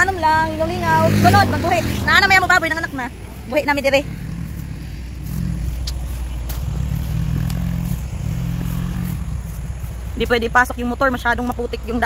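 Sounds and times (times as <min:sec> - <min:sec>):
motorcycle engine running: 0:00.0 - 0:12.0
faint clicks: 0:04.5 - 0:08.0.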